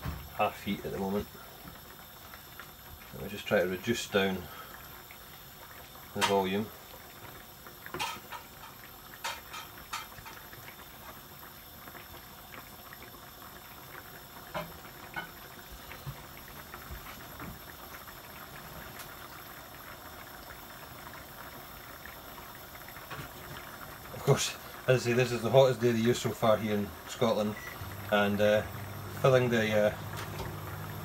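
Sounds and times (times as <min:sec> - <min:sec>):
curry bubbling in a frying pan: 0:00.0 - 0:31.0.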